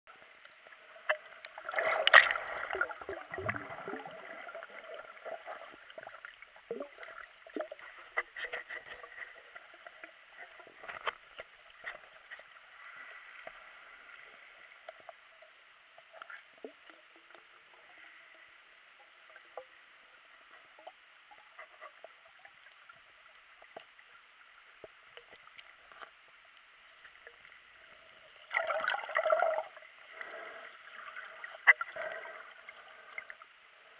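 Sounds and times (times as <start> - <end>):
clicks and crackles: 10.0 - 12.5.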